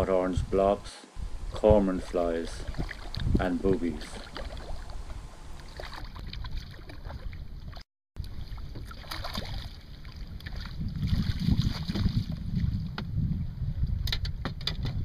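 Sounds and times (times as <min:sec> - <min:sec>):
wind buffeting microphone: 0:00.0 - 0:07.8, 0:10.1 - 0:15.0
water lapping against boat hull: 0:02.0 - 0:13.1.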